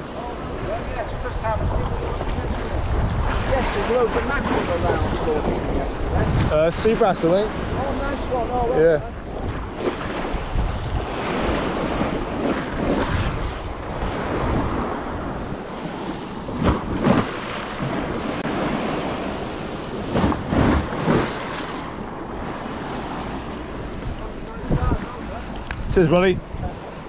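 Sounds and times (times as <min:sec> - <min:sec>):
sea surf washing on beach: 0:00.0 - 0:27.0
wind buffeting microphone: 0:00.0 - 0:27.0.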